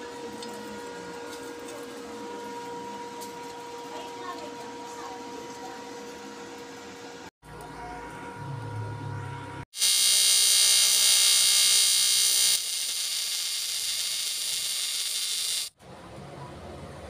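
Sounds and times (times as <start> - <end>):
welding arc buzzing hiss: 9.7 - 15.8.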